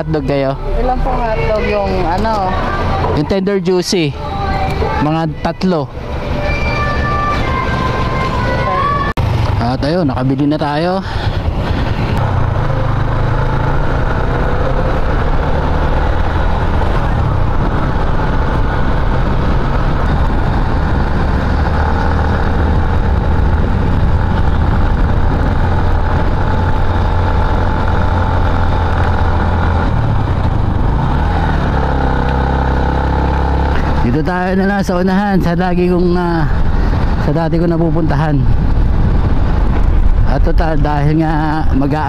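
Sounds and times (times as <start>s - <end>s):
rushing noise: 0.0s - 42.0s
motorcycle engine running: 9.2s - 37.2s.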